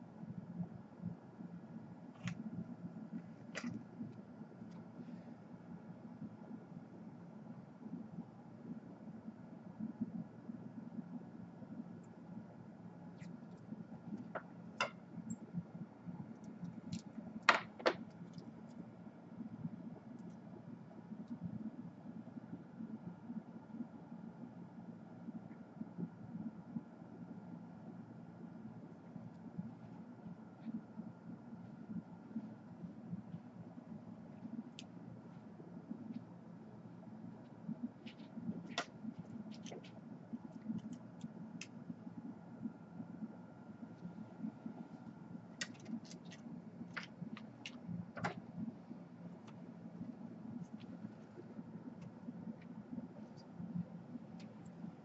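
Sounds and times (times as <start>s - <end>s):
faint low hum: 0.0s - 55.0s
small clicks and taps of tweezers: 45.6s - 47.8s.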